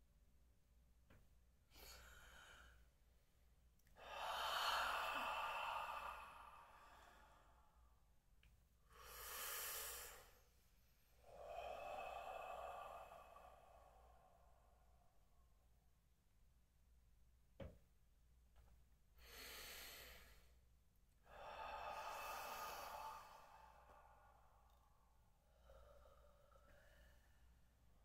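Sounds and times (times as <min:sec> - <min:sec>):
deep slow breathing: 0:01.7 - 0:02.9, 0:04.0 - 0:08.1, 0:08.9 - 0:15.5, 0:19.2 - 0:20.6, 0:21.2 - 0:28.0.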